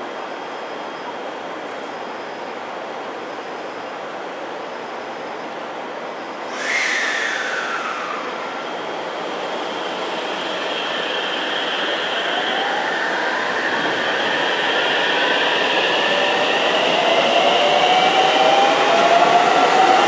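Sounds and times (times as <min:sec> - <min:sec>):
steady train hum: 0:00.0 - 0:20.0
air brake hiss: 0:06.4 - 0:08.8.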